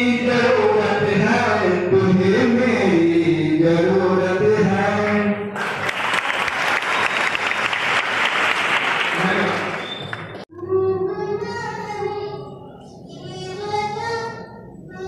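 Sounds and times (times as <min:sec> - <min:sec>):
applause: 0:05.6 - 0:10.4.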